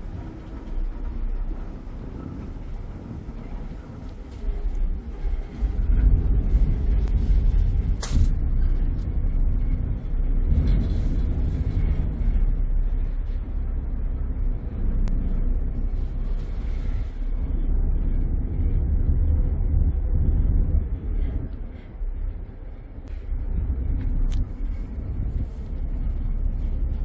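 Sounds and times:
ferry engines rumbling: 0:00.0 - 0:27.0.

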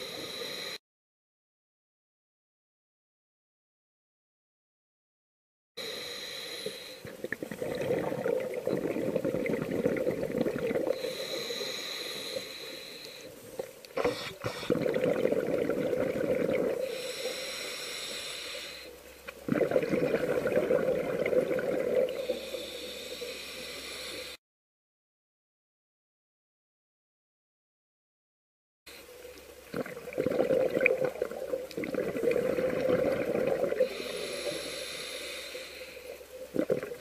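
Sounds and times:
hissing regulator inhalation: 0:00.0 - 0:00.8, 0:05.8 - 0:24.4, 0:31.8 - 0:37.0
bubbling underwater exhalation: 0:07.0 - 0:11.2, 0:14.0 - 0:17.2, 0:19.4 - 0:22.7, 0:29.7 - 0:34.4, 0:36.4 - 0:37.0.

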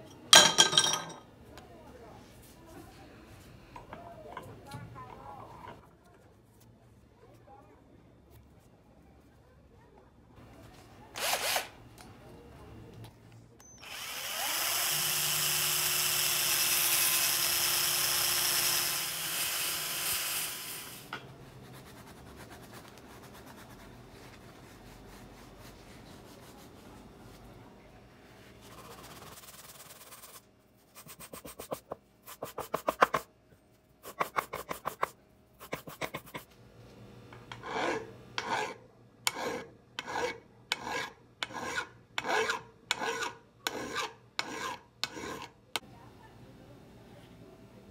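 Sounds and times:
small power tool humming: 0:13.8 - 0:21.1
file strokes on wood: 0:28.6 - 0:33.3, 0:37.5 - 0:45.5
hand abrasive pad rubbing: 0:28.6 - 0:33.3, 0:34.0 - 0:36.5.

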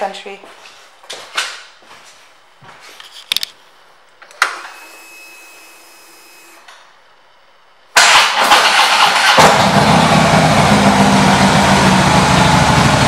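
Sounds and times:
faint electrical hum: 0:00.0 - 0:08.0
motorcycle starter cranking: 0:08.0 - 0:09.8
motorcycle engine firing up: 0:08.0 - 0:13.0.

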